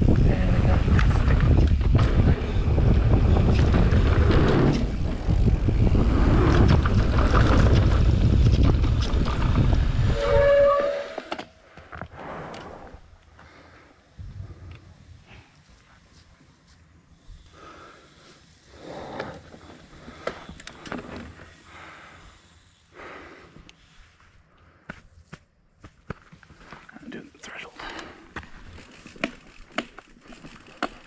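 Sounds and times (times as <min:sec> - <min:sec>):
wind rushing over microphone: 0:00.0 - 0:10.7, 0:14.2 - 0:15.2
bike tyre rumble: 0:00.0 - 0:24.8, 0:28.0 - 0:31.0
bike rattling clicks: 0:00.8 - 0:10.0, 0:27.8 - 0:31.0
brake squeal: 0:10.0 - 0:11.4.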